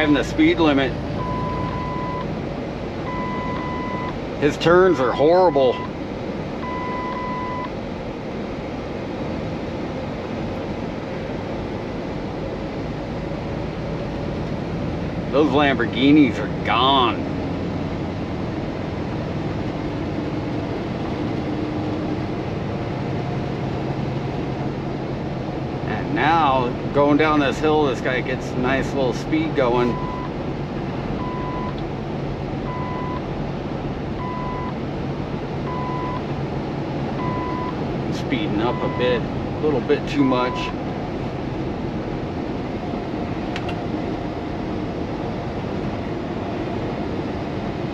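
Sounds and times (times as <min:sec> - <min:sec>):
road and wind noise: 0:00.0 - 0:47.9
truck diesel engine droning: 0:00.0 - 0:47.9
dashboard warning beep: 0:01.2 - 0:02.3, 0:03.1 - 0:04.2, 0:04.8 - 0:06.0, 0:06.6 - 0:07.8, 0:29.8 - 0:30.3, 0:31.2 - 0:31.8, 0:32.7 - 0:33.3, 0:34.2 - 0:34.8, 0:35.7 - 0:36.3, 0:37.1 - 0:37.8, 0:38.5 - 0:39.2, 0:40.3 - 0:40.8
electronic beep: 0:01.2 - 0:02.3, 0:03.1 - 0:04.2.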